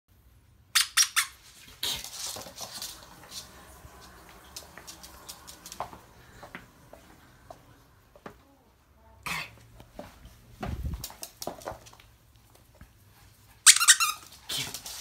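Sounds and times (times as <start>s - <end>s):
squeaky dog toy: 0.7s - 1.4s, 13.6s - 14.4s.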